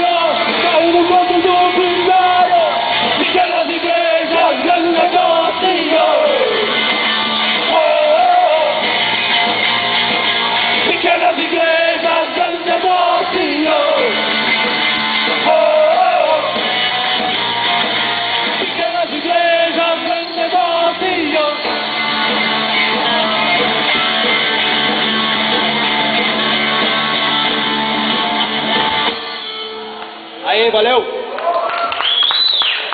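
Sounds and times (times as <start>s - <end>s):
person singing and shouting: 0.0s - 6.7s
live rock band playing: 0.0s - 31.2s.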